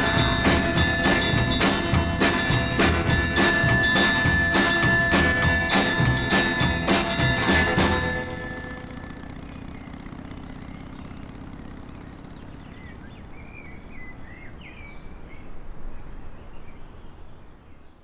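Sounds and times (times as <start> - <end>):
music chord: 0.0 - 10.5
bird chirps: 8.4 - 18.0.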